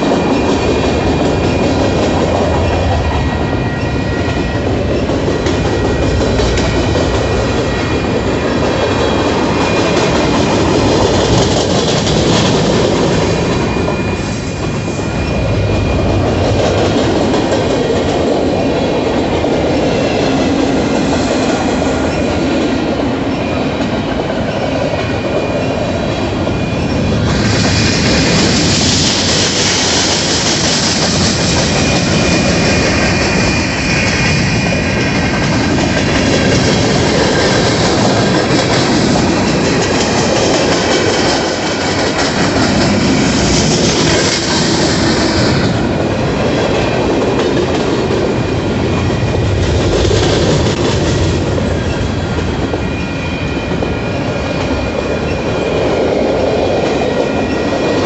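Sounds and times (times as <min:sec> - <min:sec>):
train wheels rumbling on rails: 0:00.0 - 0:58.0
high ringing tones: 0:07.6 - 0:17.5.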